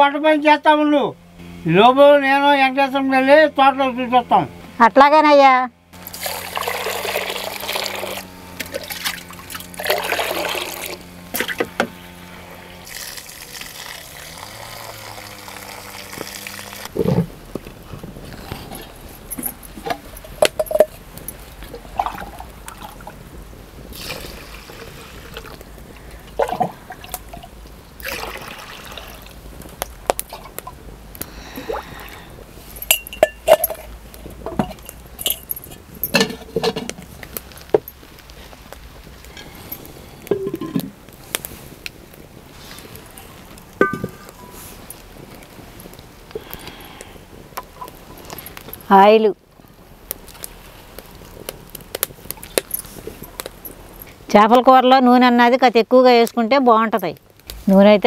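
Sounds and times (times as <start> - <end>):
water pouring over rice: 6.0 - 8.2, 8.8 - 11.0, 12.8 - 16.8, 23.9 - 25.6, 26.3 - 29.4
clay pots knocking and clinking: 19.3 - 21.0, 32.8 - 33.9, 40.3 - 41.0, 43.8 - 44.6.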